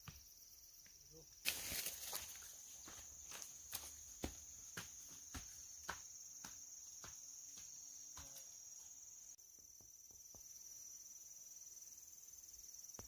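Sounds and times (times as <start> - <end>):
crickets droning: 0.0 - 13.0
footsteps on dirt path: 1.5 - 8.9.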